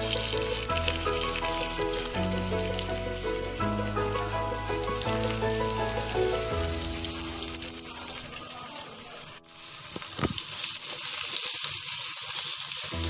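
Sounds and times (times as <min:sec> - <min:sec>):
faint background music: 0:00.0 - 0:10.3
vegetables sizzling in a pot: 0:00.0 - 0:13.0.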